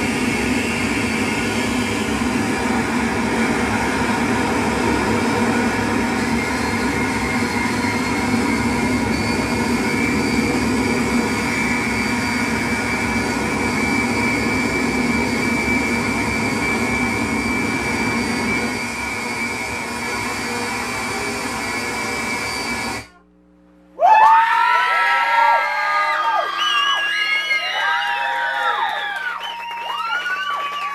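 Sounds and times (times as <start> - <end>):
electronic noise drone: 0.0 - 24.0.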